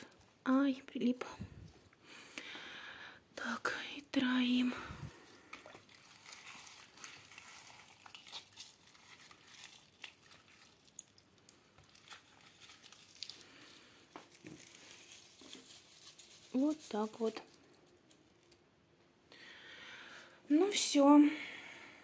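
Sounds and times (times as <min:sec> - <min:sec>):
soft handling rustles: 0:11.8 - 0:18.6.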